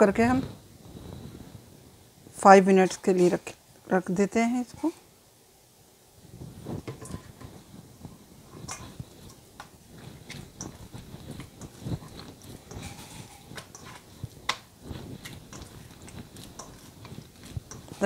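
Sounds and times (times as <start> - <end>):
hands kneading soft dough: 6.4 - 18.0.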